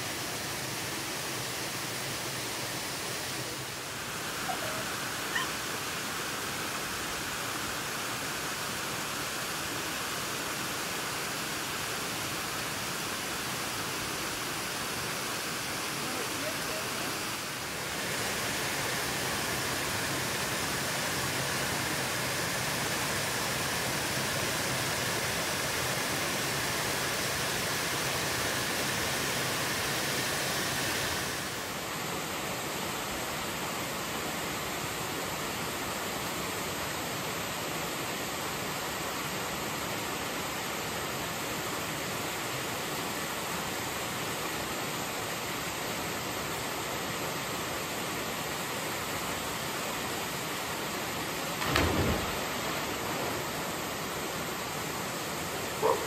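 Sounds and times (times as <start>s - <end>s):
waterfall splashing into pool: 0.0s - 33.2s, 33.8s - 56.0s.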